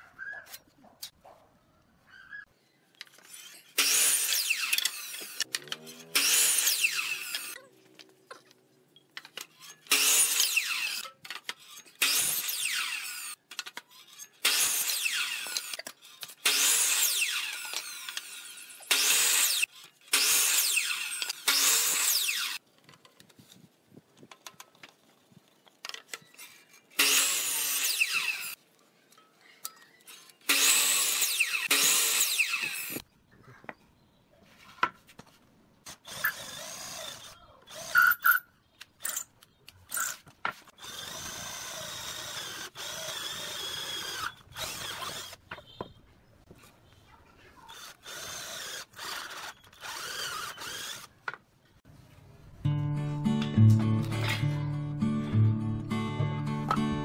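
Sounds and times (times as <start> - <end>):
miter saw cutting wood: 3.3 - 7.6, 9.6 - 11.1, 11.7 - 13.4, 14.1 - 22.6, 26.9 - 28.6, 30.4 - 33.0, 40.8 - 45.4, 47.7 - 51.2.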